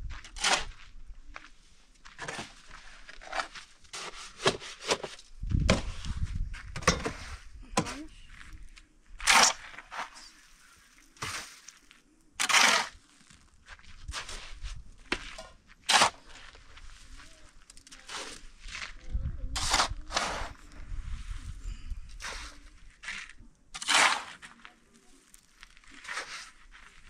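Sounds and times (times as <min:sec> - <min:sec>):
shovel scraping cement in wheelbarrow: 0:00.3 - 0:00.7, 0:02.2 - 0:05.2, 0:06.8 - 0:08.0, 0:09.2 - 0:10.3, 0:11.2 - 0:11.8, 0:12.4 - 0:13.1, 0:15.2 - 0:16.6, 0:18.0 - 0:18.9, 0:19.5 - 0:20.6, 0:22.1 - 0:24.6, 0:25.9 - 0:27.0.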